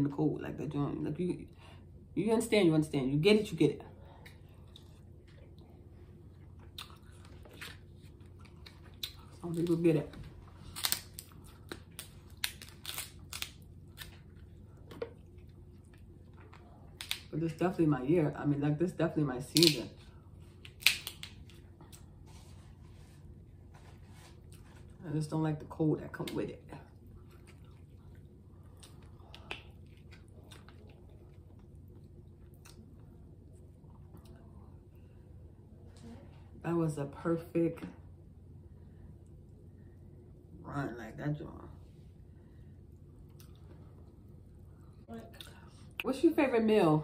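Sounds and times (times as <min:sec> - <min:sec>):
soft chewing: 0:04.0 - 0:17.2, 0:20.0 - 0:25.0, 0:26.8 - 0:36.4, 0:42.1 - 0:46.0
crab shell cracking: 0:10.6 - 0:14.2, 0:16.9 - 0:17.3, 0:20.6 - 0:21.6.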